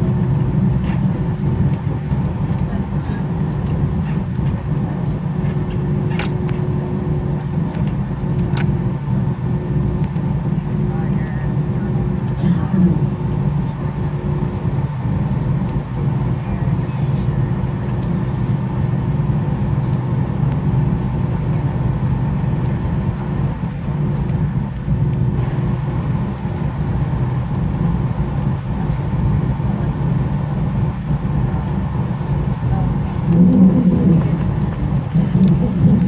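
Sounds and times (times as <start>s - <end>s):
faint steady whine: 0.0s - 36.0s
jet engine low rumble: 0.0s - 36.0s.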